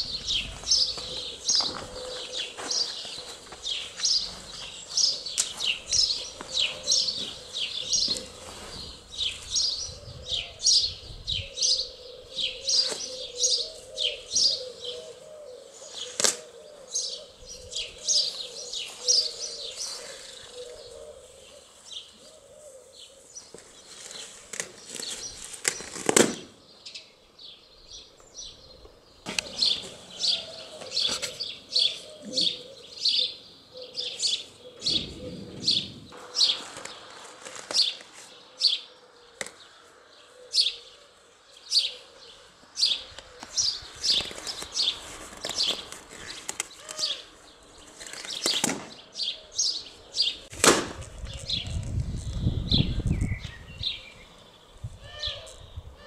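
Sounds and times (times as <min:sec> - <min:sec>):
small birds chirping: 0:00.0 - 0:50.5, 0:51.2 - 0:56.0
loud sharp crack: 0:50.5 - 0:51.1.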